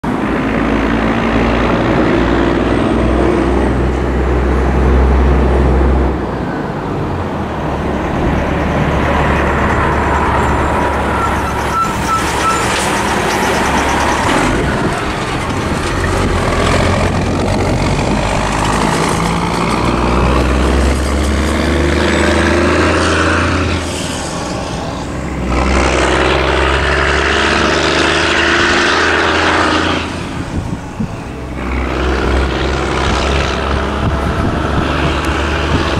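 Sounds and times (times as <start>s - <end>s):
cars driving past: 0.0s - 35.9s
low traffic rumble: 0.0s - 35.9s
truck driving past: 0.0s - 35.9s.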